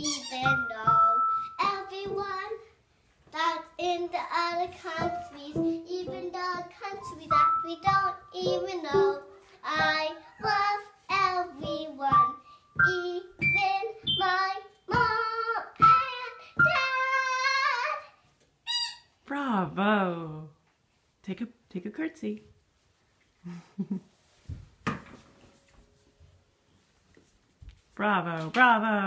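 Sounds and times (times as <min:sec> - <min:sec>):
girl singing: 0:00.0 - 0:18.3.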